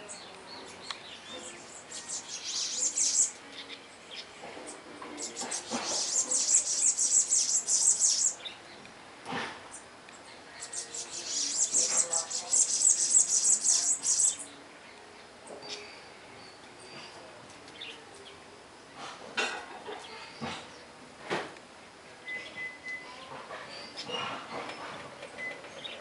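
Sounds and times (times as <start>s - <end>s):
wren singing high chattering notes: 0.0s - 8.8s, 9.7s - 15.0s.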